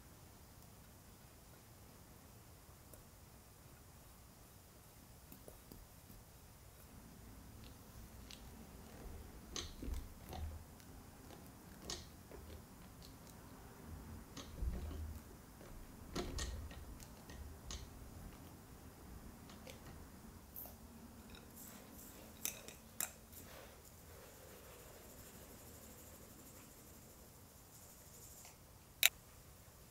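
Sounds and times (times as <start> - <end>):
clicks of spatula on whisk wires: 9.5 - 13.6, 14.3 - 18.6, 22.3 - 23.2.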